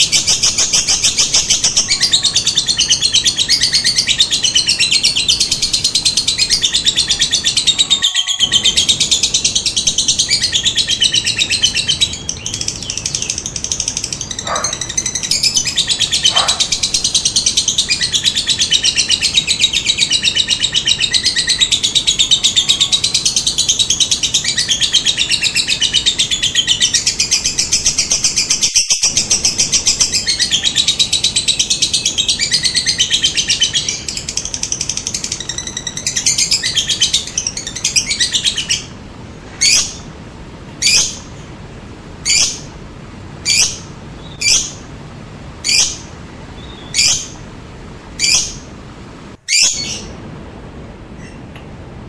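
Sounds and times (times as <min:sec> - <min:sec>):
lovebird trilling: 0:00.0 - 0:39.0.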